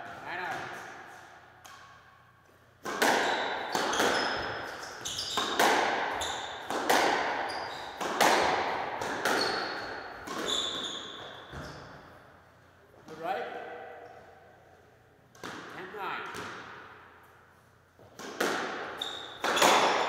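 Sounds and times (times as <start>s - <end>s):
squash ball hits echoing: 2.8s - 12.0s, 15.3s - 17.1s, 18.0s - 20.0s
shoes squeaking on wooden floor: 3.2s - 6.6s, 9.3s - 11.8s.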